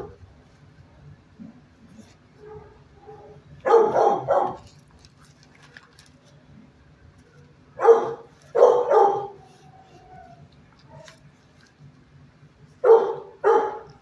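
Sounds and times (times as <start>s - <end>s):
dog barking: 2.4s - 4.6s, 7.8s - 9.4s, 12.8s - 14.0s.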